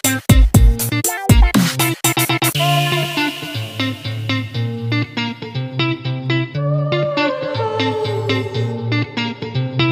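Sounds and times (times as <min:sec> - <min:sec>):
plucked notes: 0:00.0 - 0:09.9.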